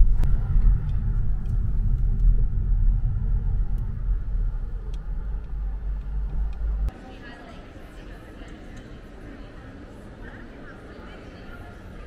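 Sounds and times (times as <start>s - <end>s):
car rumbling on road: 0.0s - 6.9s.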